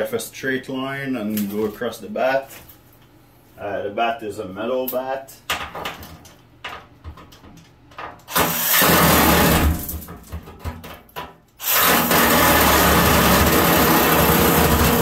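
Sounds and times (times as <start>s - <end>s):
reciprocating saw cutting metal: 8.3s - 9.8s, 11.6s - 15.0s.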